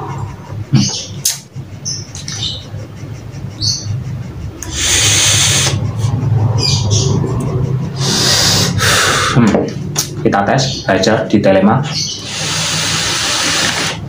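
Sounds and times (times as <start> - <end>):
low steady hum: 0.0 - 8.8
bird chirps: 0.0 - 9.2, 9.8 - 12.8
person exhaling vapour: 8.0 - 9.5.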